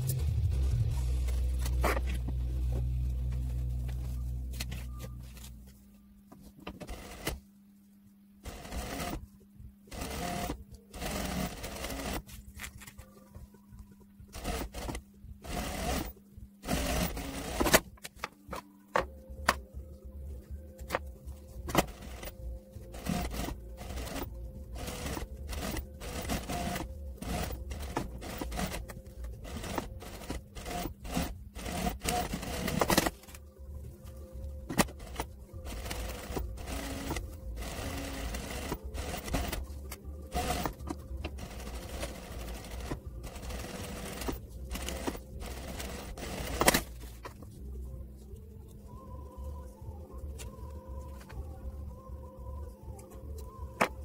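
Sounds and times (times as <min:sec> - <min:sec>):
motor hum: 0:00.0 - 0:54.0
sewing machine stitching: 0:06.7 - 0:07.4, 0:08.4 - 0:09.3, 0:09.9 - 0:12.4, 0:14.3 - 0:17.9, 0:21.7 - 0:33.4, 0:34.7 - 0:47.3.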